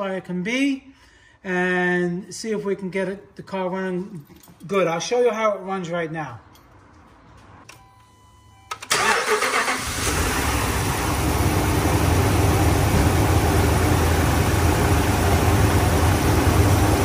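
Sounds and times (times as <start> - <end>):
car engine starting and idling: 8.7 - 17.0.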